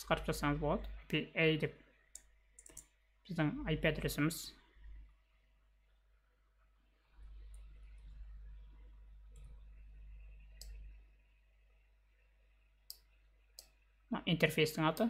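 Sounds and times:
low hum: 0.0 - 15.0
computer mouse clicks: 2.1 - 3.0, 9.3 - 9.6, 10.5 - 10.9, 12.9 - 13.8.

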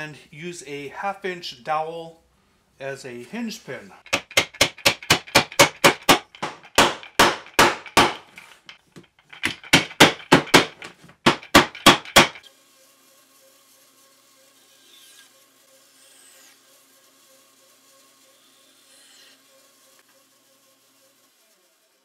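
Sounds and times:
wooden mallet striking pins: 4.1 - 12.5.

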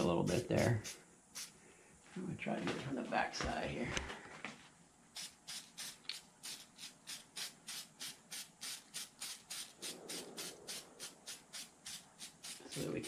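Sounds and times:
aerosol can spraying hissing bursts: 0.3 - 1.6, 5.1 - 13.0.

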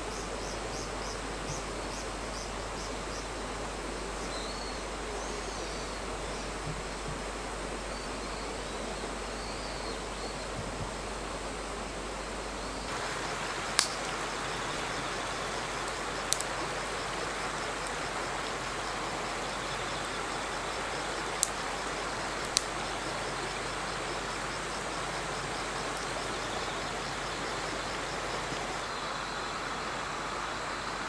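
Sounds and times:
insects trilling: 0.0 - 31.0
river water flowing: 0.0 - 31.0
wood fire popping: 12.9 - 18.8, 21.0 - 23.4.

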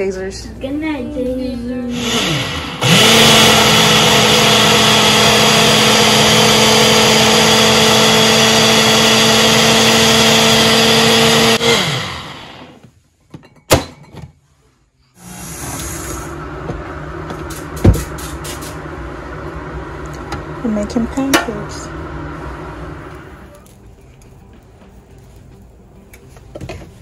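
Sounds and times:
kitchen appliance motor running: 1.9 - 12.8, 15.2 - 23.4.

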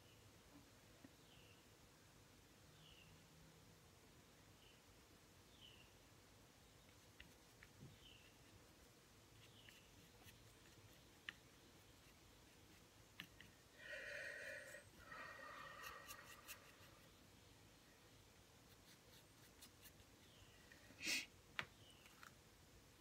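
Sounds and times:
paintbrush rubbing textured surface: 15.0 - 17.2.

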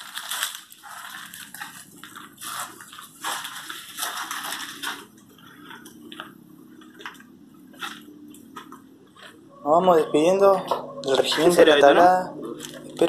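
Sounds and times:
footsteps crunching on debris: 0.8 - 9.4.

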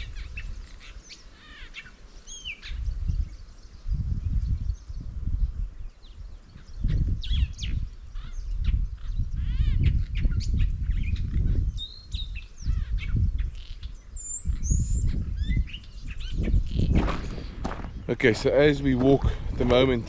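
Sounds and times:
birds chirping: 0.0 - 20.0
low uneven rumble: 17.1 - 20.0.

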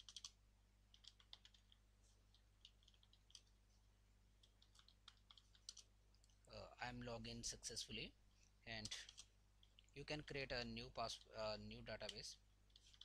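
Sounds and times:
faint keyboard typing: 0.0 - 3.6, 4.4 - 6.5, 8.7 - 13.0
low steady hum: 0.0 - 13.0.

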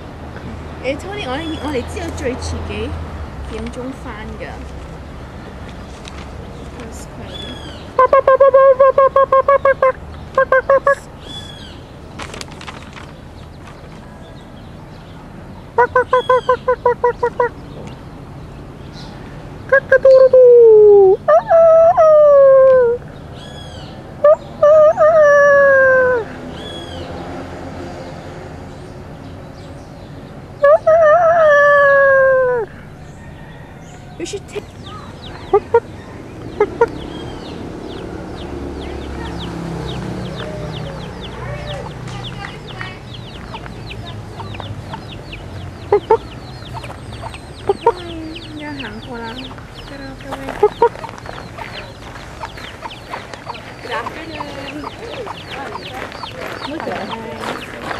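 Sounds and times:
higher bird calls: 6.5 - 12.4, 15.6 - 18.0, 18.9 - 27.2, 29.5 - 57.9
hen clucking: 6.8 - 11.8, 15.8 - 18.0, 19.7 - 27.1, 30.6 - 38.1, 39.0 - 57.9
roosters crowing: 20.1 - 27.7, 30.6 - 42.4, 50.5 - 57.9.

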